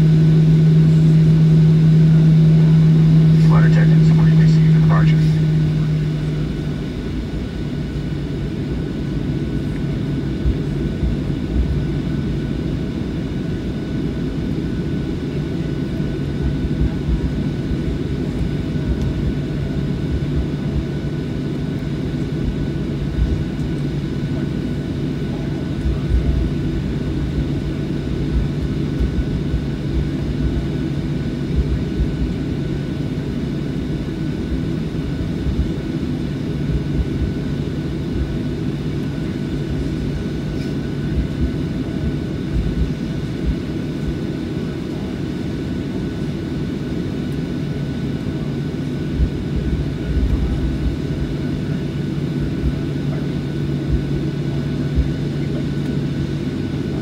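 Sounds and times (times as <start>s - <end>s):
high-pitched whine: 0.0s - 8.7s
jet engines humming: 0.0s - 57.0s.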